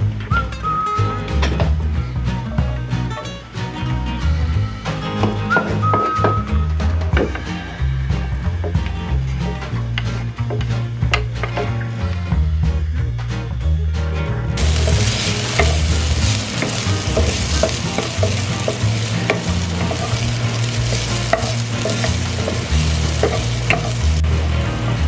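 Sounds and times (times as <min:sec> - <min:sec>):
wooden spatula scraping a pan: 0:14.6 - 0:24.2
ginger sizzling in a metal pan: 0:14.6 - 0:25.0.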